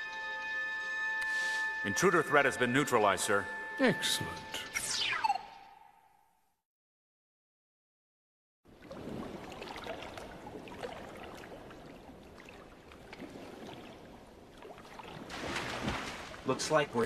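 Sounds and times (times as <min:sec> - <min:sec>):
cartoon water churning and splashing: 0:08.7 - 0:16.6.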